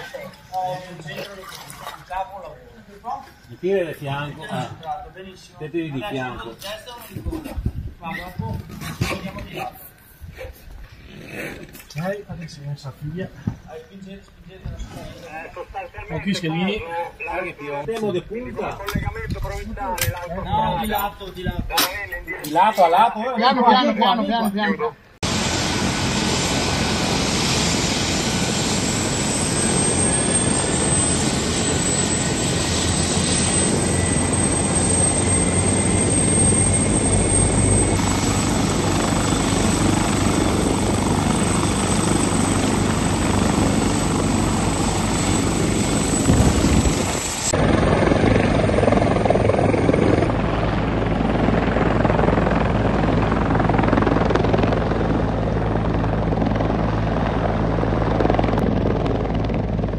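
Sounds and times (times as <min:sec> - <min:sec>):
helicopter rotor and engine: 0:03.5 - 0:10.6, 0:12.0 - 0:59.9
high turbine whine: 0:25.0 - 0:59.9.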